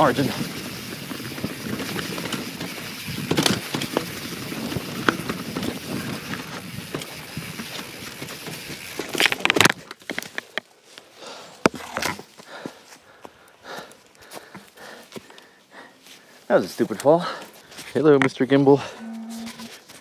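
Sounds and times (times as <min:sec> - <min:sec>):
bike tyres rolling on trail: 0:00.0 - 0:20.0
bike rattling knocks: 0:01.3 - 0:07.1.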